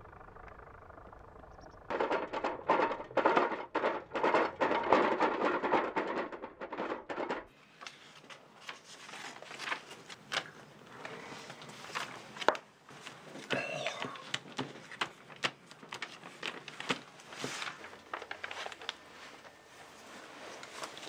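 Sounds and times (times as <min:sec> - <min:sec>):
scattered knocks: 0:00.1 - 0:07.5
wheelbarrow of scrap metal rattling: 0:01.9 - 0:07.5.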